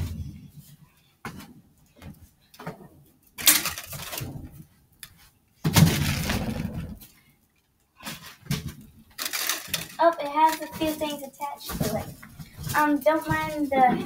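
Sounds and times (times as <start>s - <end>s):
bouncing ball rattling clatter: 8.5s - 11.1s.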